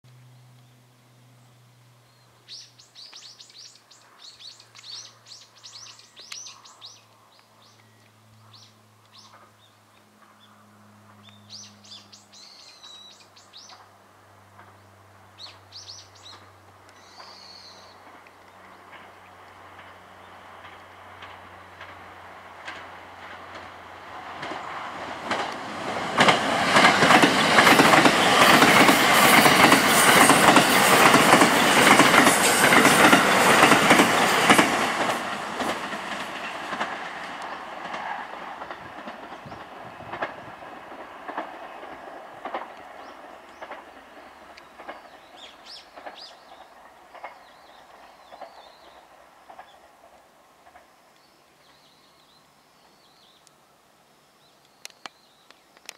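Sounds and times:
train wheels rushing on rail: 0:12.6 - 0:53.3
train wheels clacking over rail joints: 0:18.0 - 0:51.0.

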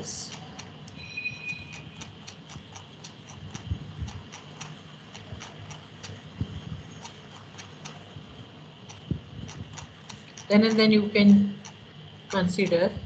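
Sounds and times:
rapid even ticking: 0:00.0 - 0:13.0
soft low thumps: 0:08.1 - 0:10.0.

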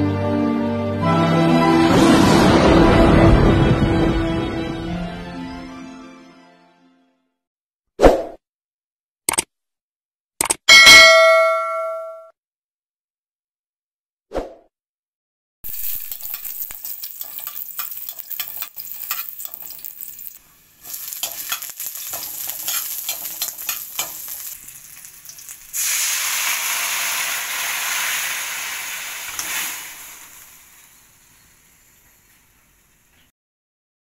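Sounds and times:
garlic and onion sizzling in oil: 0:15.6 - 0:33.3
metal spatula scraping a pan: 0:15.7 - 0:25.9
loud hiss of liquid in hot oil: 0:15.7 - 0:33.1.

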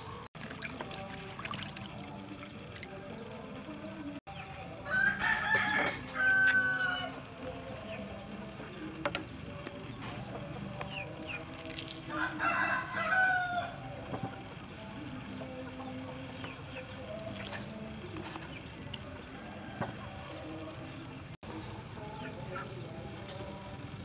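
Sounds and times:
rooster crowing: 0:04.8 - 0:07.2, 0:12.1 - 0:13.8.

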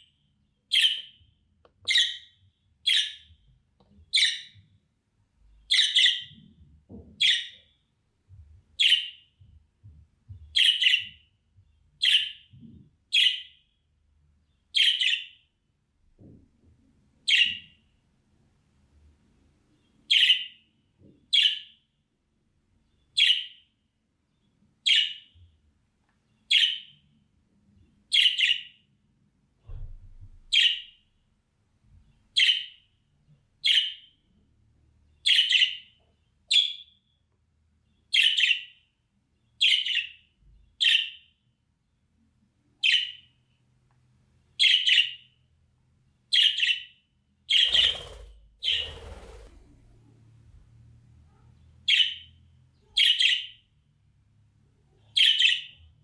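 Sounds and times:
wings fluttering: 0:47.5 - 0:50.0.

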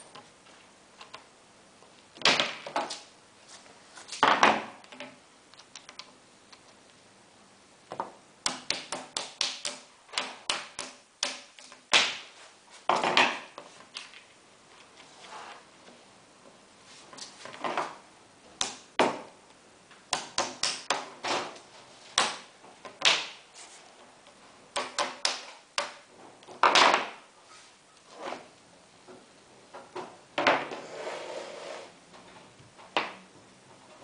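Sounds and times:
blind fabric rustling: 0:12.3 - 0:16.1, 0:30.6 - 0:32.7.

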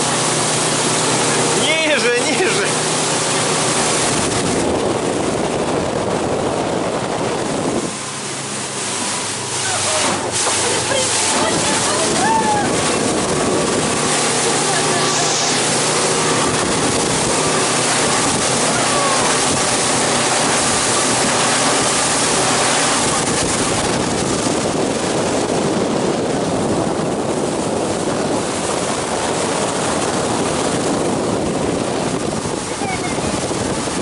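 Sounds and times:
boat engine hum: 0:00.0 - 0:34.0
water rushing along hull: 0:00.0 - 0:34.0
wind: 0:00.0 - 0:34.0.

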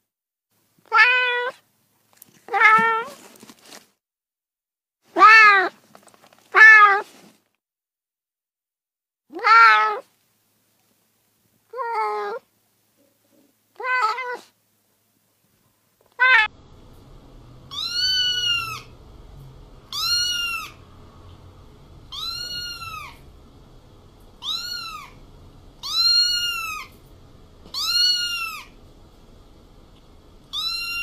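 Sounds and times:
cat meowing: 0:00.9 - 0:01.6, 0:02.5 - 0:03.2, 0:05.1 - 0:05.8, 0:06.5 - 0:07.1, 0:09.3 - 0:10.1, 0:11.7 - 0:12.4, 0:13.8 - 0:14.5, 0:16.1 - 0:16.5, 0:17.7 - 0:18.9, 0:19.8 - 0:20.9, 0:22.1 - 0:23.3, 0:24.4 - 0:27.0, 0:27.6 - 0:28.8, 0:30.5 - 0:31.0.

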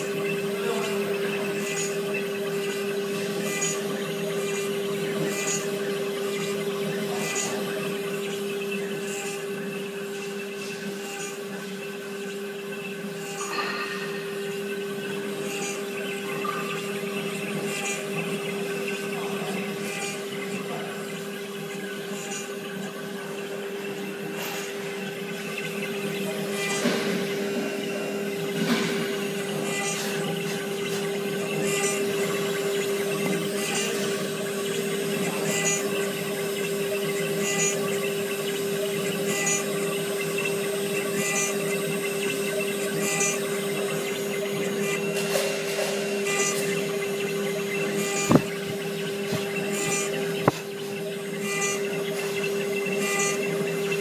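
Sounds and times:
router spindle running: 0:00.0 - 0:54.0
high-pitched cutting bursts: 0:46.0 - 0:54.0.

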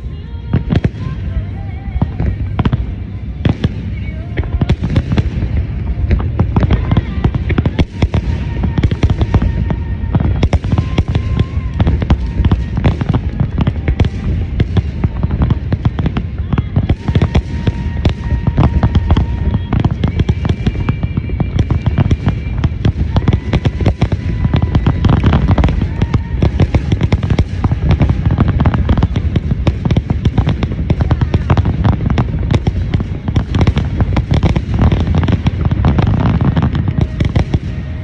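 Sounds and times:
fireworks bangs and crackling: 0:00.0 - 0:38.0.

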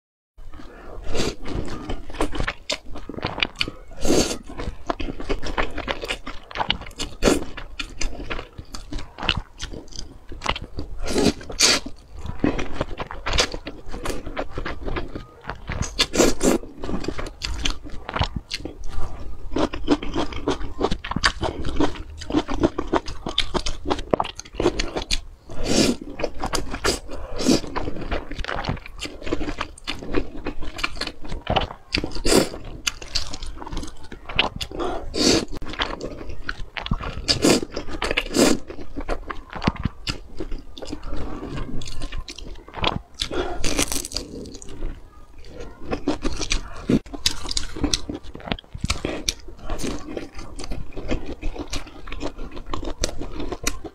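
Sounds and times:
crunchy chewing: 0:00.5 - 0:53.9
slurping noodles: 0:10.7 - 0:17.2, 0:25.5 - 0:30.3, 0:32.0 - 0:33.8, 0:34.6 - 0:36.2, 0:37.0 - 0:38.8.

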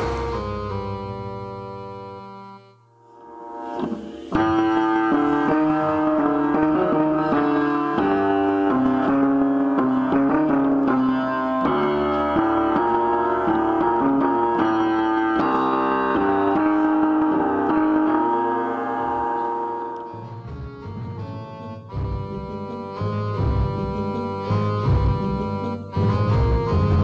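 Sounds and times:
upright piano playing: 0:00.0 - 0:02.7, 0:04.4 - 0:27.0.

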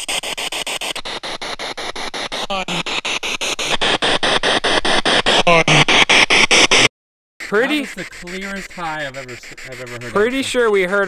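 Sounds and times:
radio static hiss: 0:00.0 - 0:11.0
rapid even ticks: 0:00.0 - 0:11.0
radio voice fragment: 0:02.3 - 0:03.0, 0:05.3 - 0:06.0, 0:07.4 - 0:11.0.

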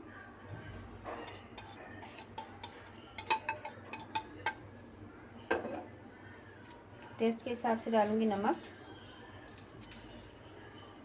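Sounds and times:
spoon scraping ceramic plate: 0:01.3 - 0:04.3.

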